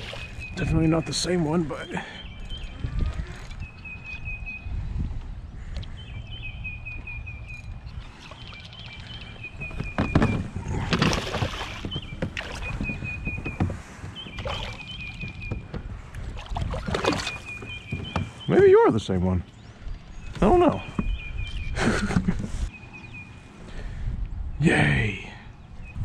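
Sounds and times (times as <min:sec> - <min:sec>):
water splashing and sloshing: 0:00.0 - 0:03.8, 0:07.6 - 0:18.5
wind on microphone: 0:02.2 - 0:18.5
fish thrashing in water: 0:10.2 - 0:13.2, 0:14.3 - 0:15.2, 0:16.2 - 0:17.7.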